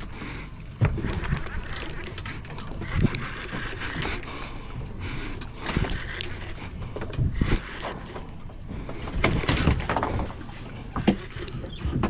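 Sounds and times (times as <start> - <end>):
fishing reel being cranked: 0.9 - 4.3, 5.6 - 8.3.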